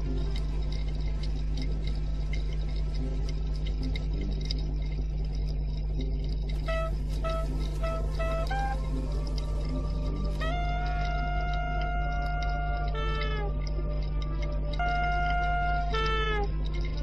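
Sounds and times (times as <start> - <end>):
faint soft tones: 0.0 - 17.0
low rumble: 0.0 - 17.0
scattered clicking: 0.0 - 17.0
flute-like melody: 6.6 - 17.0.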